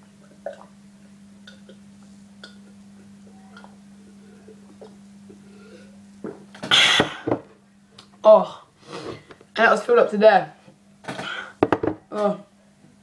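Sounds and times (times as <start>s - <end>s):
steady low hum: 0.0s - 9.6s
person swallowing water: 0.2s - 0.8s.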